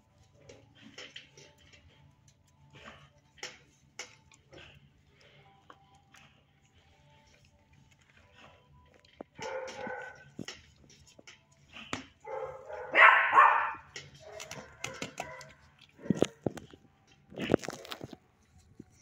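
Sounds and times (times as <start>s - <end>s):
puppy barking and yipping: 9.4s - 10.2s, 12.2s - 16.3s.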